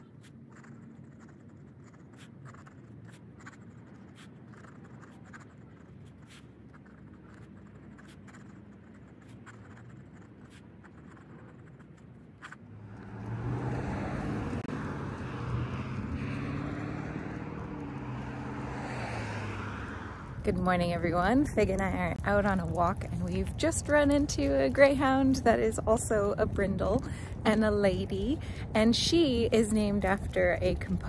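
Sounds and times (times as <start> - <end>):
pen nib scratching on paper: 0.0 - 13.4
loud vehicle engine: 12.6 - 20.6.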